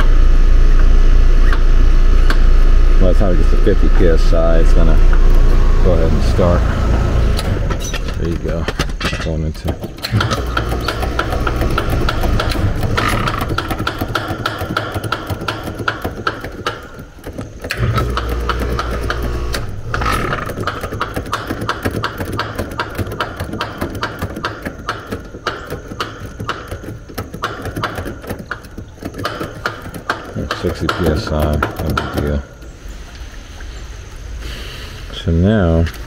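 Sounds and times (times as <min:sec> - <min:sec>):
air conditioner unit humming: 0:00.0 - 0:32.9
wrench clicking: 0:09.8 - 0:16.9.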